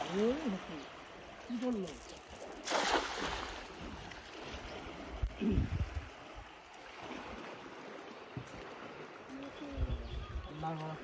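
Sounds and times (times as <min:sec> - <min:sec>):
river noise: 0:00.0 - 0:11.0
wind: 0:00.0 - 0:11.0
net splashing into water: 0:02.4 - 0:04.6.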